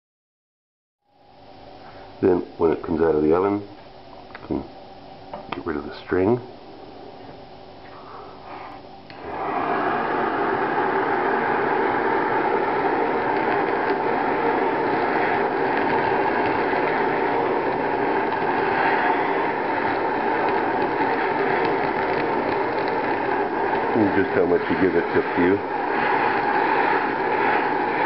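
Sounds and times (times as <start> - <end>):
blowtorch flame hissing: 8.5 - 28.0.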